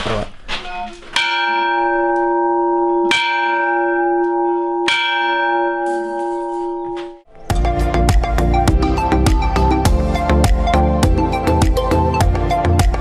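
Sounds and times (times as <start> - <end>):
small church bell ringing: 1.2 - 7.3.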